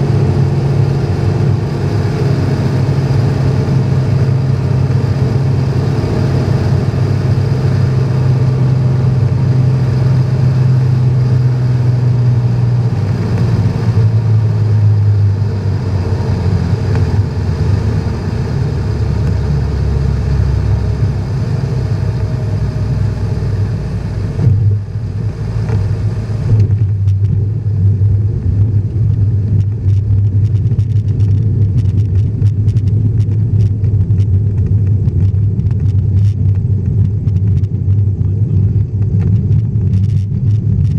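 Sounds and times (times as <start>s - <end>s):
propeller plane engine drone: 0.0s - 40.9s.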